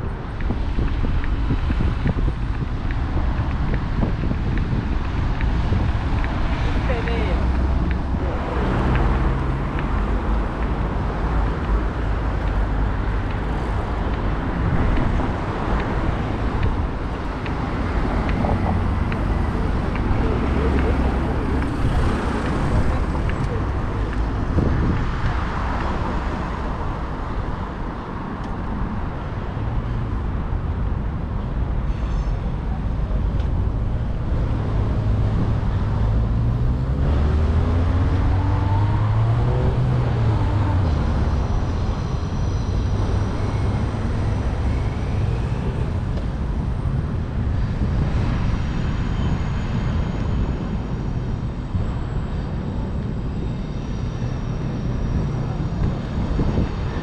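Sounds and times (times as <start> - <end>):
street traffic noise: 0.0 - 57.0
vehicle engine rising in pitch: 34.2 - 48.0.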